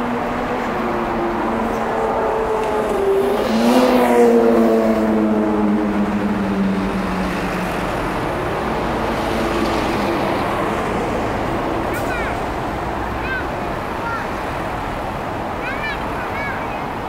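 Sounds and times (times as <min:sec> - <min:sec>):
vehicle engine passing: 0:00.0 - 0:15.6
traffic noise: 0:00.0 - 0:17.0.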